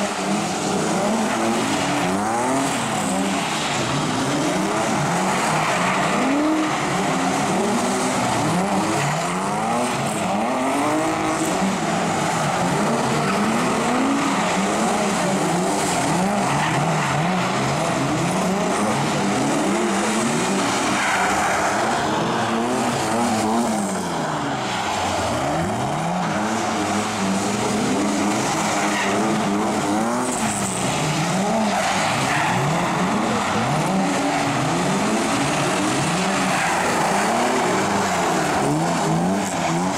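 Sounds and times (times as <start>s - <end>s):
car engines revving: 0.0s - 39.9s.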